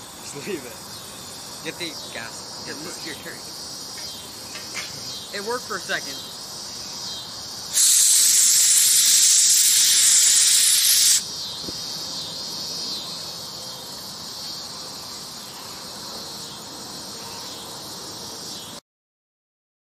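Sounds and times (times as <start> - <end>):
crickets chirping: 0.0 - 18.8
jet engine gas hiss: 7.6 - 11.8.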